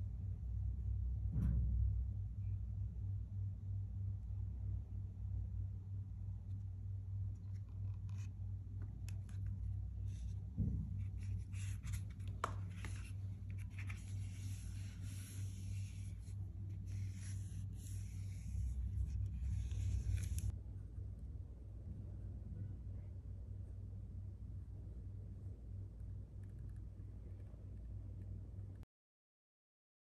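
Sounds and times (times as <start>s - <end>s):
steady low hum: 0.0s - 28.8s
scratchy rubbing of leather: 11.2s - 20.5s.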